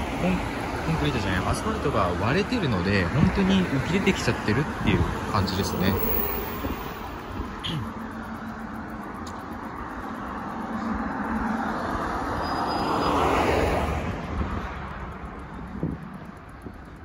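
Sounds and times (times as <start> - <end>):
vehicle passing by: 9.7 - 16.4.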